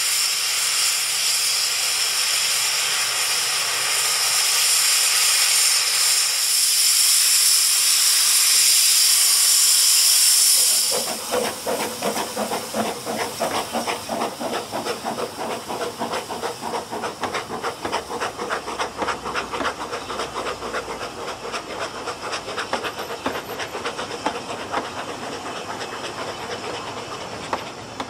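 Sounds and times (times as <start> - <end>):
steady steam hiss: 0.0 - 28.0
steam locomotive exhaust beats: 0.0 - 28.0
train carriages rolling past: 10.4 - 28.0.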